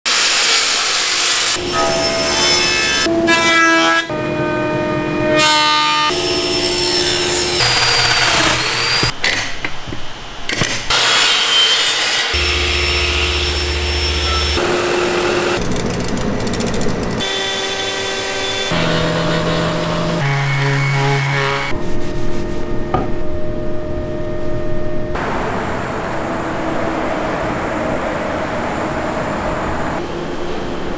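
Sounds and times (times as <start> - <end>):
thickness planer: 5.3 - 9.2, 10.9 - 21.8
miter saw cutting a board: 6.1 - 9.1, 10.9 - 15.7, 17.2 - 21.7.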